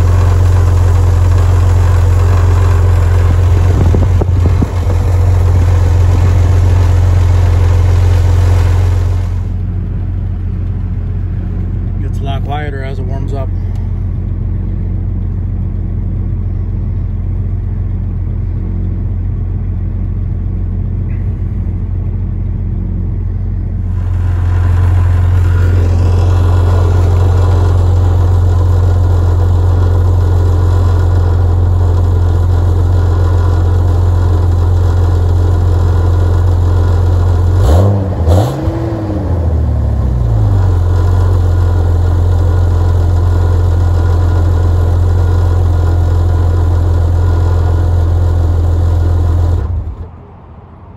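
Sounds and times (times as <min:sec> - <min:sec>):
rattly exhaust: 0:00.0 - 0:50.2
car engine idling: 0:00.0 - 0:50.3.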